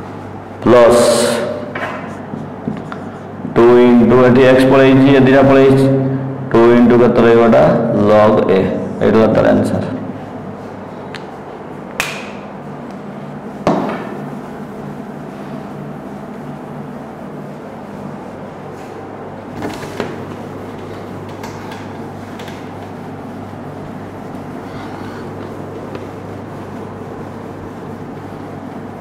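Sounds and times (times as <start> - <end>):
steady low hum: 0.0 - 29.0
cloth rubbing whiteboard: 12.4 - 29.0
knocks against board: 13.6 - 14.2.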